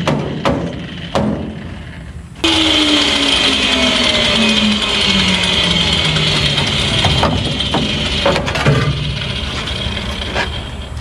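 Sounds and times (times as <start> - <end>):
rotary tool whine spinning down: 2.4 - 11.0
sheet metal clanking and scraping: 3.5 - 11.0.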